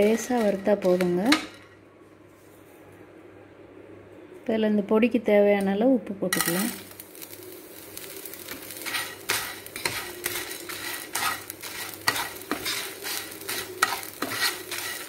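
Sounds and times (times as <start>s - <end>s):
spatula scraping frying pan: 0.0s - 1.4s, 8.3s - 15.0s.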